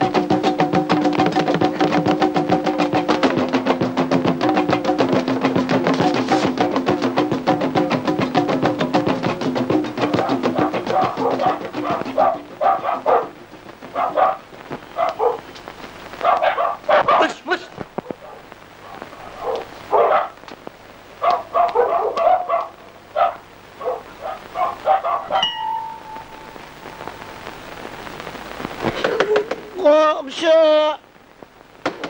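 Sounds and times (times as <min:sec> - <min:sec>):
dog barking: 0:10.0 - 0:15.5, 0:16.2 - 0:17.4, 0:18.0 - 0:20.4, 0:21.2 - 0:25.9
steady tone: 0:25.3 - 0:28.1.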